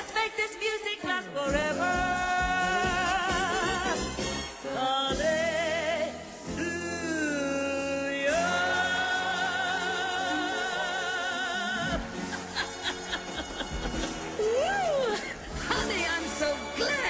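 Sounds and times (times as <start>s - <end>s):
person singing with vibrato: 0.0s - 12.2s
musical accompaniment: 0.0s - 17.0s.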